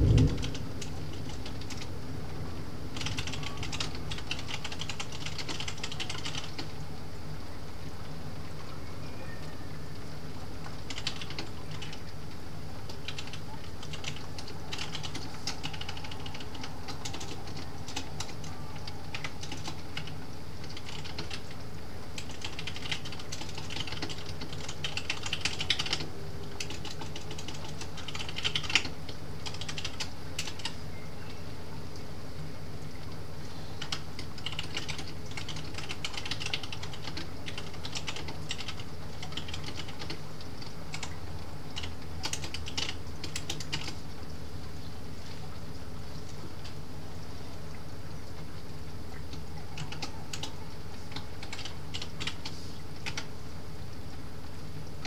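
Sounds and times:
computer keyboard typing: 0.0s - 1.9s, 2.9s - 6.7s, 10.6s - 12.1s, 12.9s - 30.8s, 33.8s - 44.0s, 49.3s - 53.3s
low background hum: 0.0s - 55.0s.

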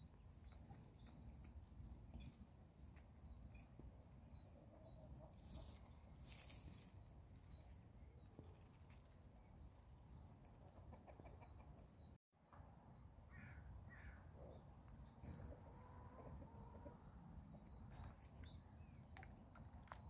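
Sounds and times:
chickens clucking: 10.4s - 12.1s, 15.1s - 18.4s.

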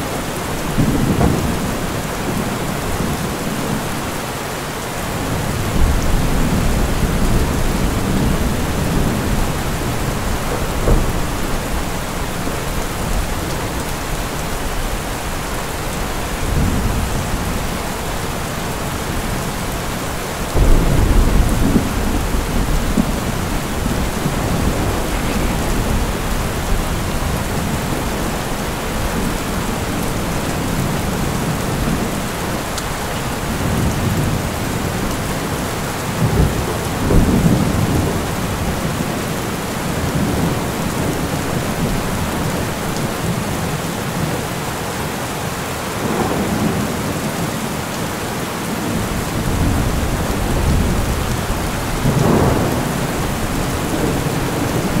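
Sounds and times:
heavy rain: 0.0s - 55.0s
thunder rolling: 5.3s - 13.8s, 20.1s - 32.2s, 48.9s - 55.0s.

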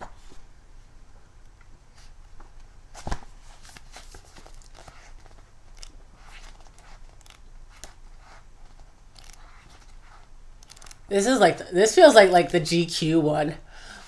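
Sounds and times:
book pages rustling: 1.9s - 11.0s.

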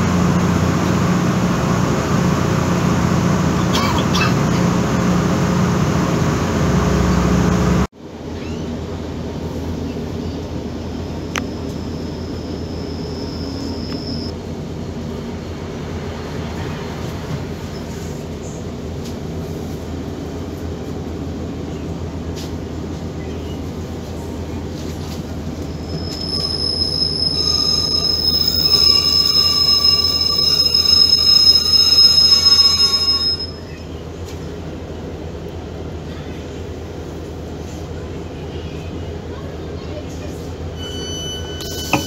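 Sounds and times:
train rumbling: 0.0s - 42.0s
high-pitched brake squeal: 11.7s - 14.3s, 25.7s - 34.0s, 40.7s - 42.0s.

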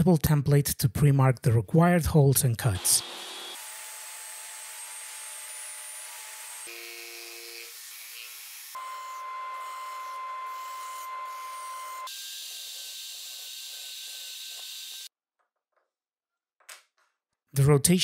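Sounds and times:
drill press drilling: 2.8s - 4.0s
jigsaw cutting: 2.8s - 15.1s
table saw cutting plywood: 2.8s - 15.1s.

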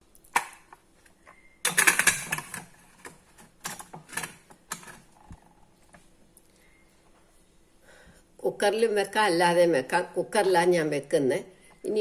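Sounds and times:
lid scraping and clicking shut: 1.6s - 5.4s
metal lid rattling on pot: 1.7s - 2.8s.

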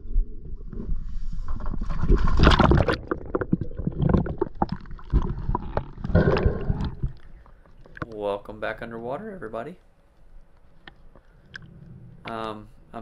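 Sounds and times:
underwater gurgling and knocks: 0.0s - 8.2s
splash into water: 2.0s - 5.3s.

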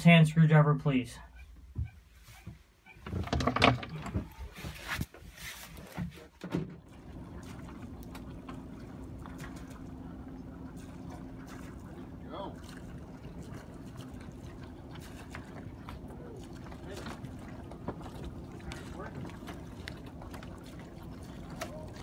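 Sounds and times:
boat engine humming: 0.0s - 22.0s
tools knocking and clattering: 3.0s - 4.3s.

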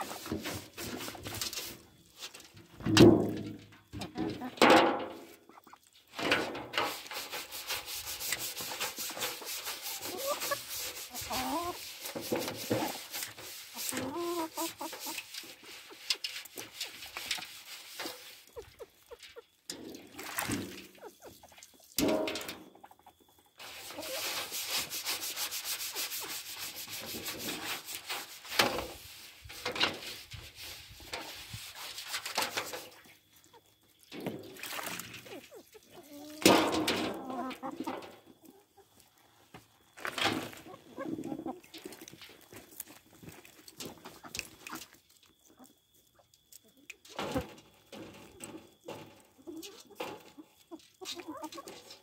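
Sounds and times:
sponge scrubbing metal pan: 0.0s - 2.4s, 6.8s - 19.2s, 23.6s - 32.9s
hens clucking: 4.0s - 5.9s, 7.4s - 28.1s, 35.1s - 39.1s, 40.4s - 42.5s, 43.9s - 52.0s.

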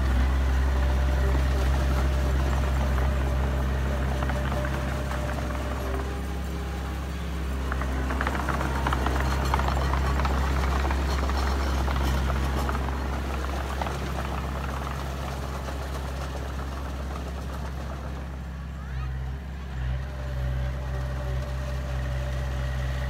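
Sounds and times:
bulldozer diesel engine under load: 0.0s - 23.0s
dense clattering and crackling: 1.0s - 18.4s.

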